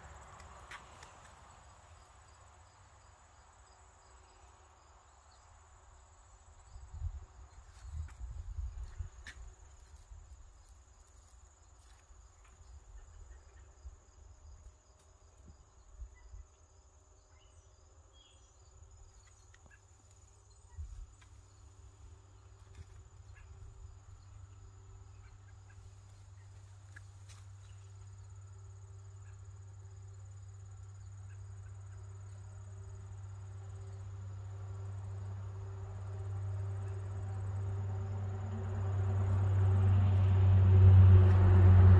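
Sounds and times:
low rumble: 35.5 - 41.9.

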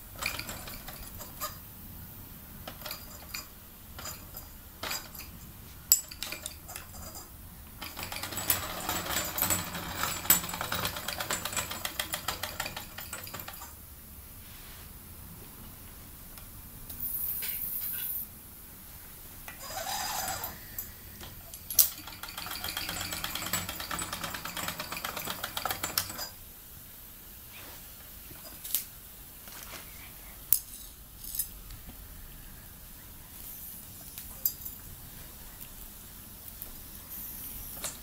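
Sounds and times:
metallic clinks on tile floor: 30.5 - 31.6
steam hiss: 36.9 - 38.0.

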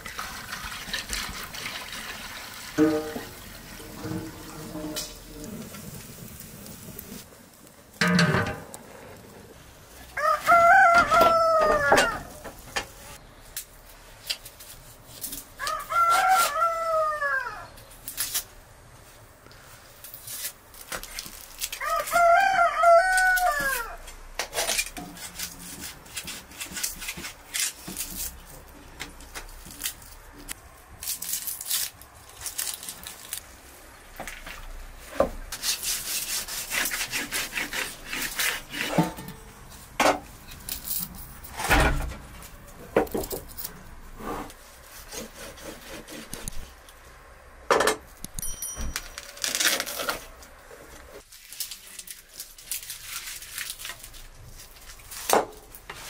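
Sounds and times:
rooster crowing: 10.2 - 12.4, 15.6 - 17.7, 21.8 - 24.0
knife scraping hide on board: 24.4 - 28.3, 35.6 - 39.4, 44.2 - 46.7.

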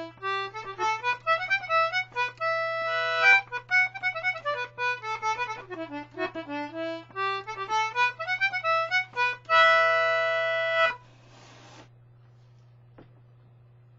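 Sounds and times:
faint steady hum: 0.0 - 13.9
hiss of air: 11.2 - 11.9.

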